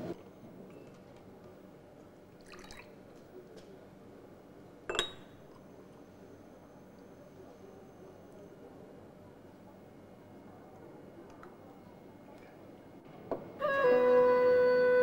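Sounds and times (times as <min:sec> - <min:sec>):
sharp ringing clink: 0:04.9 - 0:05.4.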